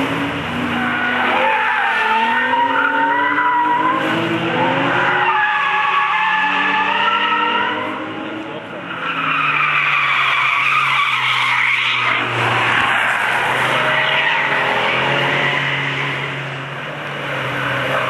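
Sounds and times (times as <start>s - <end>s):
car engines under load: 0.0s - 18.0s
tyre squeal: 5.0s - 7.9s.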